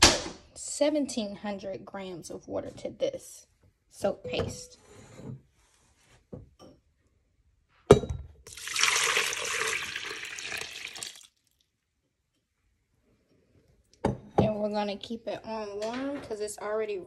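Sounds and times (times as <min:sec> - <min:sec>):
water pouring and splashing: 0:08.5 - 0:11.5.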